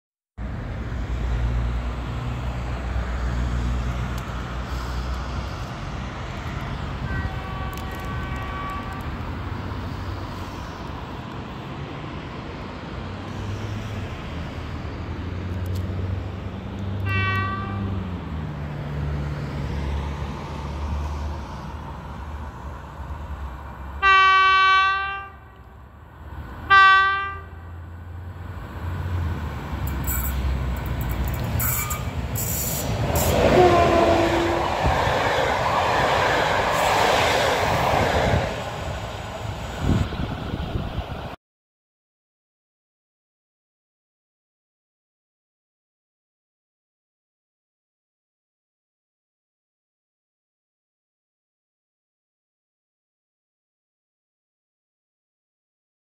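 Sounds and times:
train horn blasts: 7.0 - 9.2, 17.0 - 18.0, 24.0 - 25.7, 26.7 - 27.7, 33.2 - 34.8
low locomotive rumble: 25.0 - 41.4.

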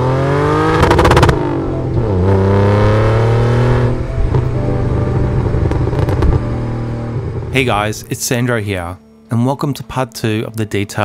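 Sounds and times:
car engine accelerating hard: 0.0 - 7.6.

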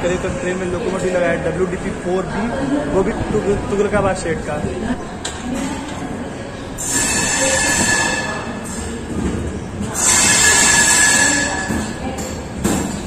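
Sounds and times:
train wheels squealing on rails: 6.6 - 13.0.

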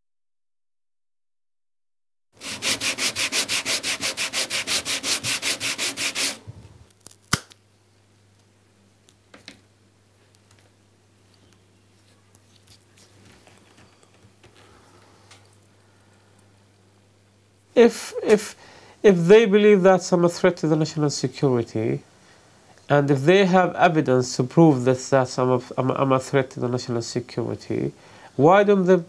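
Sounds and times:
sandpaper rubbing on wood: 2.4 - 6.4
faint handling sounds: 8.1 - 16.6.

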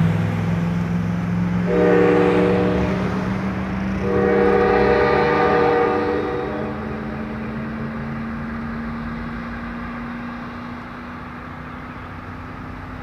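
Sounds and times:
engine and traffic drone: 0.0 - 13.0.

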